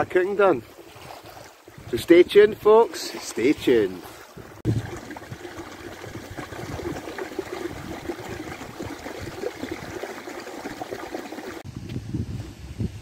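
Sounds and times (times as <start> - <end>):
stream trickling over stones: 2.9 - 11.6.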